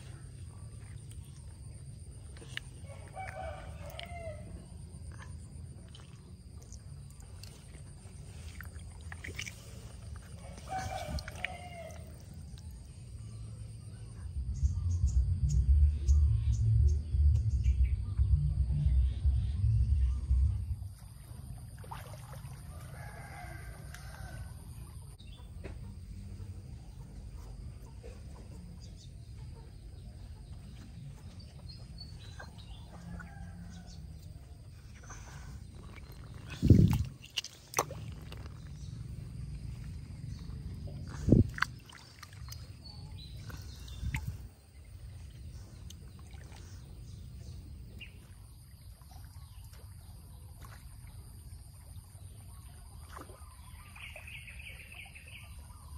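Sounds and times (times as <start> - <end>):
rooster crowing: 2.8 - 4.6, 10.4 - 12.2, 22.7 - 24.6
steady low rumble: 4.6 - 21.9, 24.5 - 49.2.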